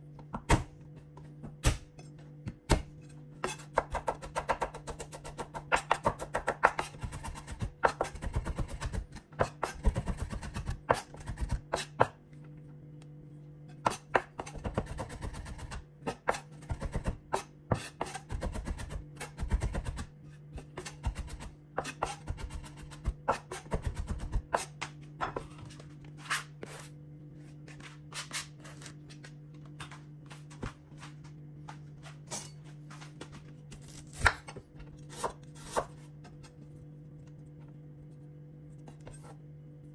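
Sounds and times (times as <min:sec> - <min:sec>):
knife chopping on wooden board: 0:33.9 - 0:36.1.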